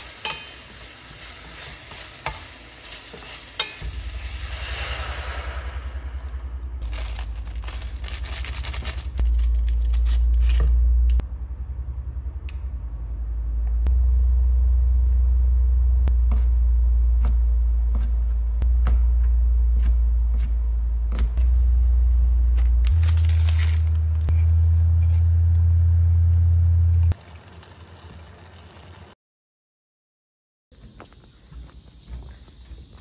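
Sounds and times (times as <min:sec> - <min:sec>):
utensil scraping in a pan: 0:00.0 - 0:05.8
loud low hum: 0:03.8 - 0:27.2.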